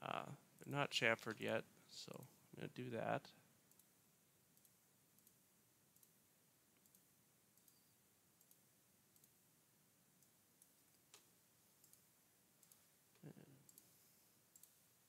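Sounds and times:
computer mouse clicks: 3.7s - 3.9s, 4.6s - 5.4s, 6.0s - 6.2s, 6.8s - 9.4s, 10.2s - 12.9s, 13.7s - 13.9s, 14.5s - 14.8s.

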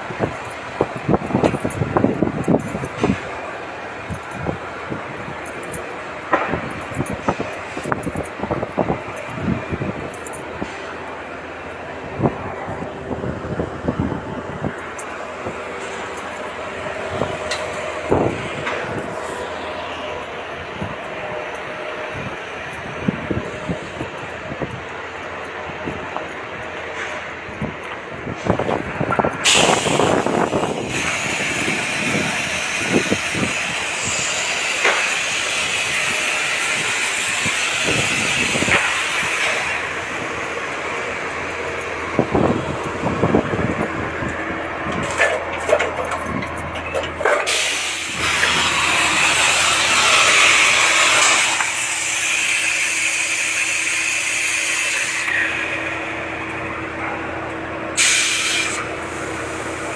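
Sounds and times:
machinery noise: 0.0s - 59.9s
knocks and clatter: 41.5s - 47.6s.

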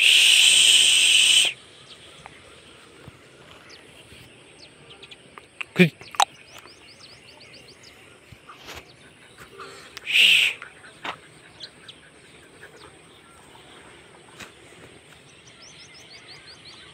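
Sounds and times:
loud short bird call: 0.0s - 1.6s, 10.0s - 10.6s
birds chirping: 0.0s - 16.9s.

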